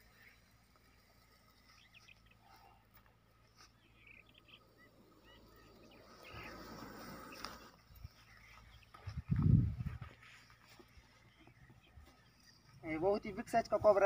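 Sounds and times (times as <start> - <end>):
faint bird chirps: 0.0 - 13.2
soft rustle: 6.5 - 12.8.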